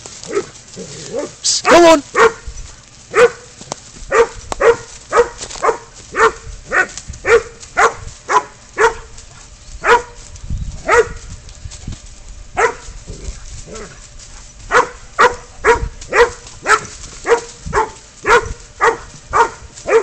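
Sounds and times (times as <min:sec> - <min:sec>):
dog barking: 0:01.2 - 0:02.5, 0:03.1 - 0:03.5, 0:04.1 - 0:09.1, 0:09.8 - 0:10.2, 0:10.8 - 0:11.2, 0:12.6 - 0:12.8, 0:14.7 - 0:20.0.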